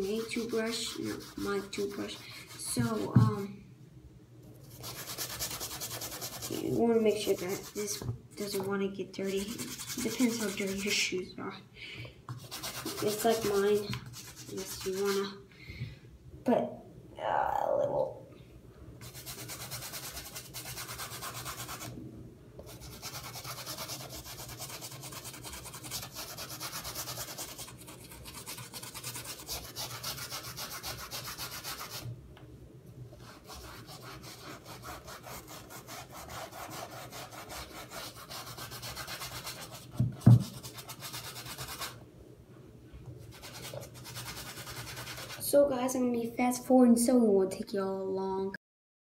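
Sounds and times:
toothbrush scrubbing sneaker: 0.0 - 3.4, 4.7 - 8.0, 9.2 - 11.0, 12.4 - 15.4, 19.0 - 21.9, 22.7 - 32.0, 33.2 - 42.0, 43.2 - 45.5.

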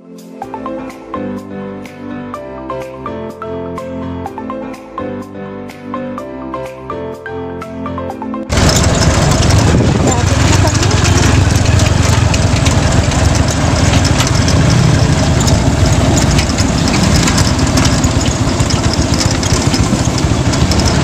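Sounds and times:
rapid ticking: 8.5 - 21.0
vehicle engine rumble: 8.5 - 21.0.

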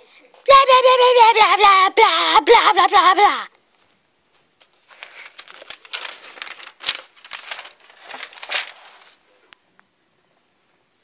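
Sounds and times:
notebook pages rustling: 4.4 - 9.3.

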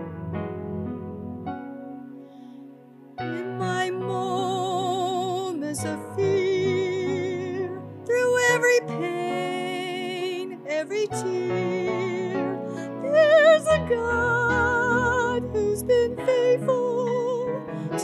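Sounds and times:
instrumental accompaniment: 0.0 - 4.8
person singing with vibrato: 3.3 - 18.0.

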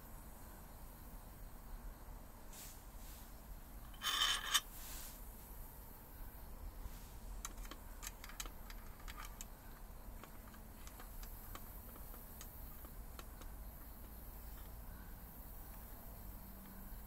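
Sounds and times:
light sharp clicks and ticks: 7.4 - 14.8.

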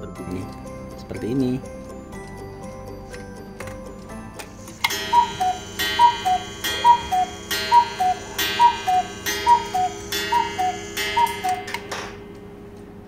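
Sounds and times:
clock strike ringing: 4.4 - 13.0
cuckoo clock two-note whistle: 4.8 - 11.9.

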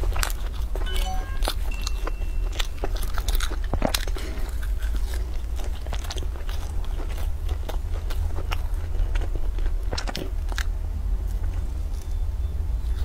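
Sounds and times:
mouth chewing sounds: 0.0 - 13.0
low hum: 0.7 - 3.4.

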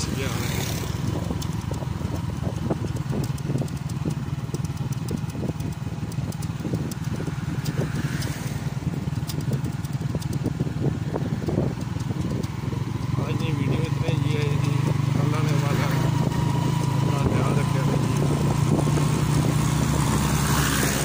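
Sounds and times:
road noise: 0.0 - 21.0
vehicle engine drone: 0.0 - 21.0.

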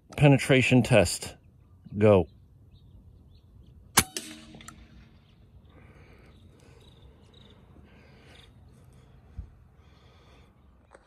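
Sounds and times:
faint bird chirps: 5.1 - 10.8.

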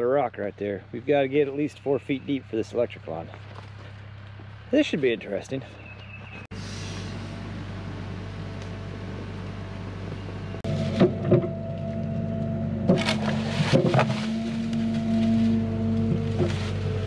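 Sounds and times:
excavator diesel engine running: 1.6 - 17.0
hydraulic whine: 6.0 - 17.0
bucket knocking against rock: 12.9 - 14.2.

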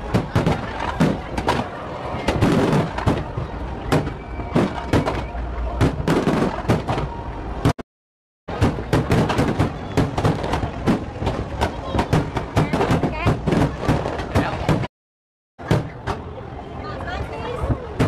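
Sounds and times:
fireworks bursting and crackling: 0.0 - 7.8, 8.5 - 14.9.

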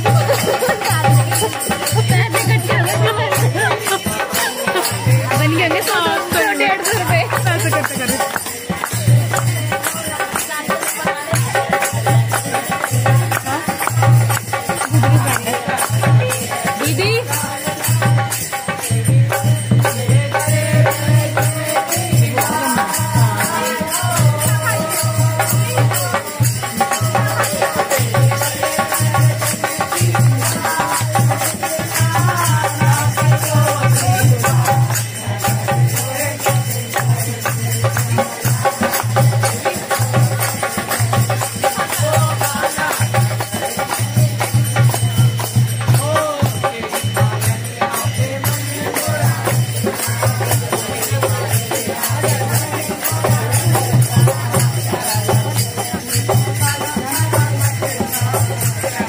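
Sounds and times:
devotional singing: 0.0 - 59.0
hand percussion and rattling: 0.0 - 59.0.

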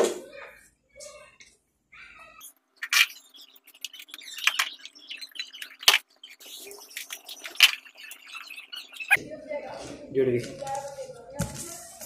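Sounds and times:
electric cable rustling and tapping: 2.5 - 9.0.

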